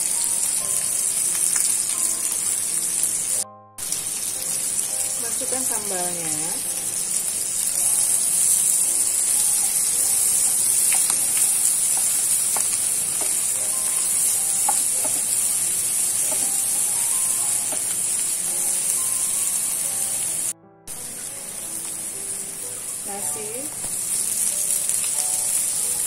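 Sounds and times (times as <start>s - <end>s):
food sizzling in hot oil: 0.0s - 26.0s
wooden spatula scraping and tapping: 10.9s - 13.4s, 14.6s - 15.4s, 16.2s - 16.9s.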